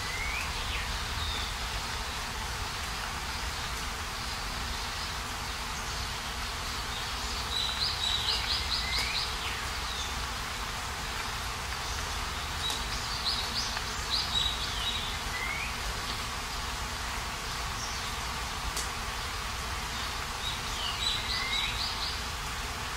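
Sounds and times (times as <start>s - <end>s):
songbird trilling: 0.0s - 1.6s, 11.8s - 15.8s, 20.4s - 22.2s
rain falling: 0.0s - 22.9s.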